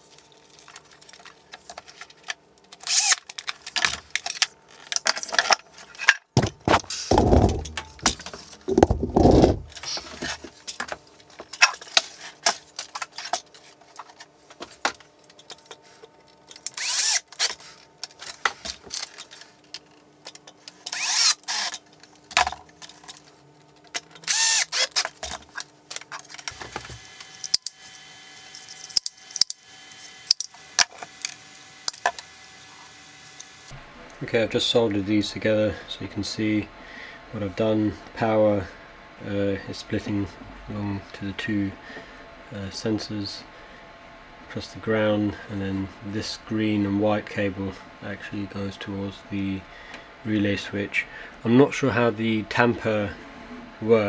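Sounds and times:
cable and small parts rustling: 0.0 - 32.3
cordless drill running: 2.8 - 3.2, 16.7 - 17.5, 20.9 - 21.8, 24.2 - 25.1.

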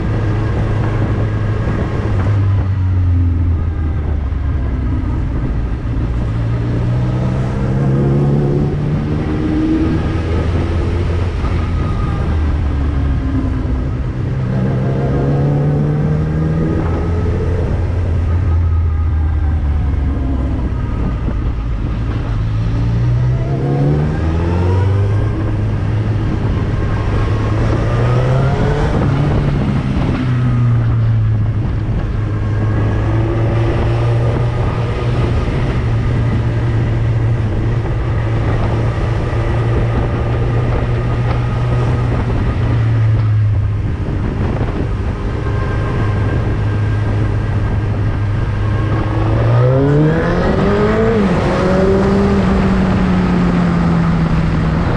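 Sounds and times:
motorcycle engine revving: 0.0 - 54.9
wind noise: 0.0 - 54.9.

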